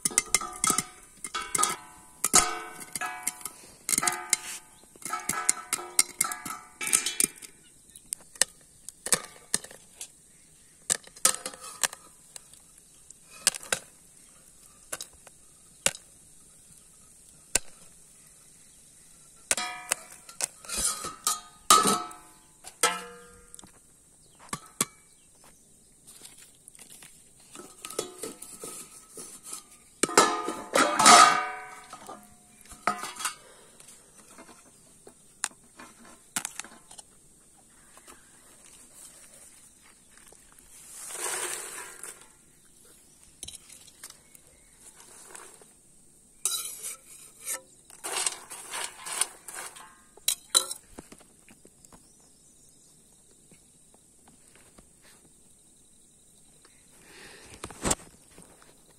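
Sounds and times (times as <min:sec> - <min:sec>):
metal lid and pan clattering: 0:00.0 - 0:07.6, 0:11.1 - 0:12.1, 0:19.5 - 0:23.5, 0:27.5 - 0:33.5, 0:46.4 - 0:50.8
corn kernels popping in metal pan: 0:00.0 - 0:12.7, 0:19.4 - 0:23.7, 0:27.5 - 0:33.4.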